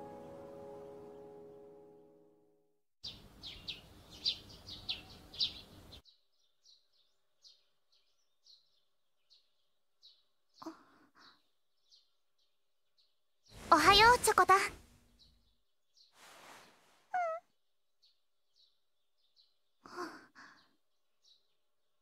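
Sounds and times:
small birds chirping: 3.0 - 22.0
faint hiss: 16.2 - 17.1
short soft sounds: 16.2 - 17.3.

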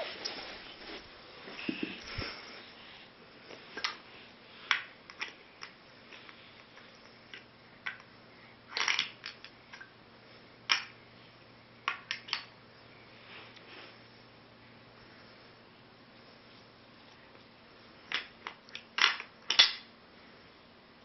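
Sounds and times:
wooden toy pieces clacking: 8.7 - 9.5, 18.1 - 19.9.

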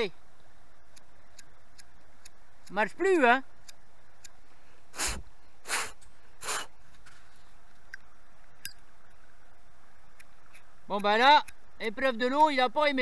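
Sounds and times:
lighter flint wheel rasps: 0.9 - 6.8, 10.1 - 12.8.

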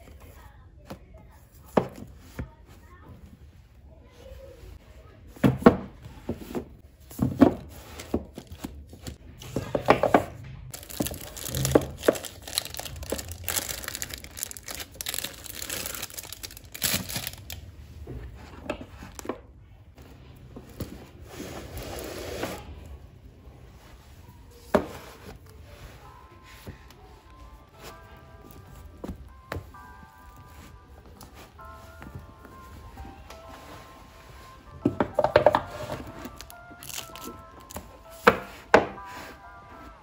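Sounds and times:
books knocking on shelf: 1.6 - 2.5, 5.3 - 8.7, 9.5 - 10.4, 34.7 - 36.4, 38.2 - 39.0
paper rustling and crinkling: 10.7 - 17.6, 35.3 - 37.9.

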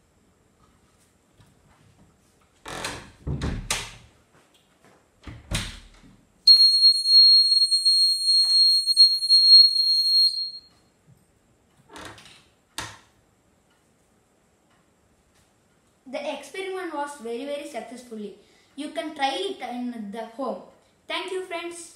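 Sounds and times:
buzzer high-pitched tone: 6.5 - 10.7.

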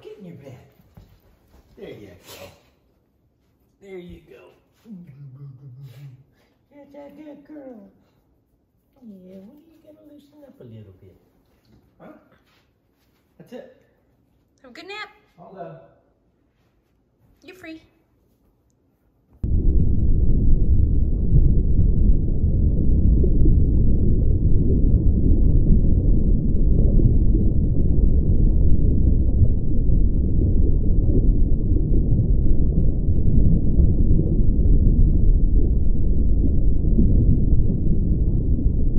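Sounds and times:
loud deep rumbling: 19.4 - 38.9.

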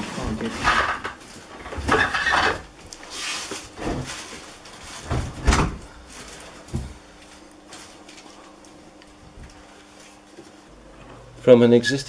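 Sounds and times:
dishwasher scraping against brick: 0.0 - 3.5.

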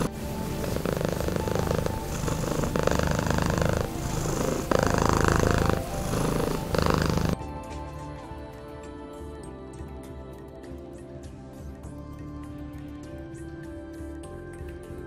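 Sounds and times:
cat purring: 0.0 - 7.4.

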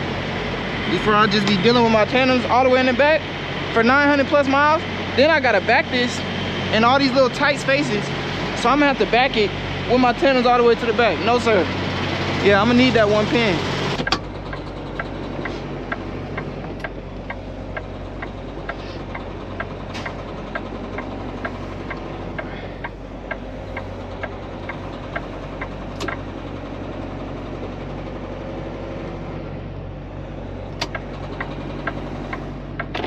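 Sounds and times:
diesel truck engine running: 0.0 - 33.0
sharp clicks and rattles: 13.9 - 27.9, 30.7 - 33.0
light even ticking: 14.0 - 26.3, 30.7 - 33.0.

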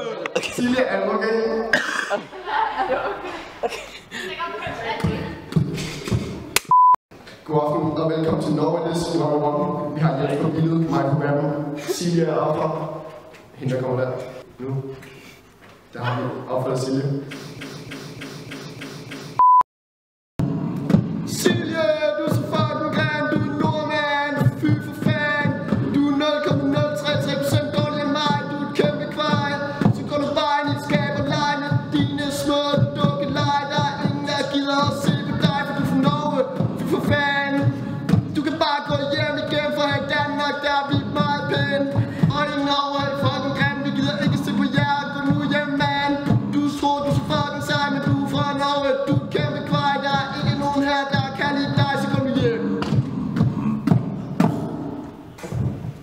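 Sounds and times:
beatboxing into a microphone: 5.0 - 13.6, 17.2 - 19.4, 20.7 - 56.0
wordless sung melody: 21.3 - 55.3.

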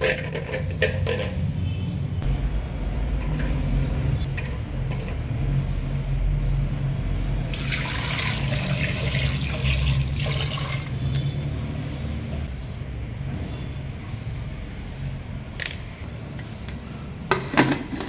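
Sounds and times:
water pouring into pot: 7.4 - 11.0.

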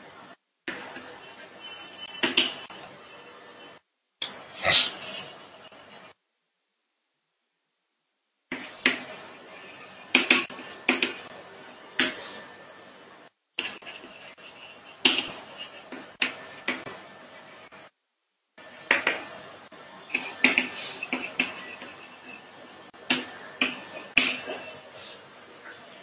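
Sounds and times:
chalk tapping on blackboard: 0.6 - 2.8, 8.5 - 11.3, 12.0 - 12.4, 13.6 - 17.0, 18.6 - 19.3, 20.1 - 24.8.

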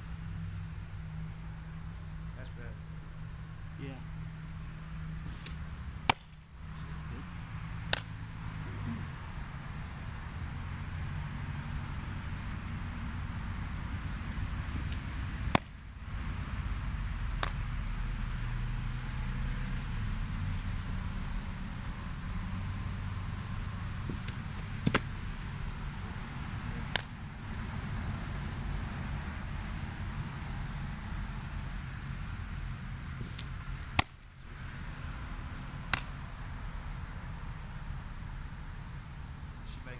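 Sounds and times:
crickets chirping: 0.0 - 39.9
sharp pops: 5.2 - 6.4, 7.8 - 8.2, 14.8 - 15.9, 17.3 - 17.7, 24.1 - 25.4, 26.8 - 27.3, 33.2 - 34.6, 35.8 - 36.3.

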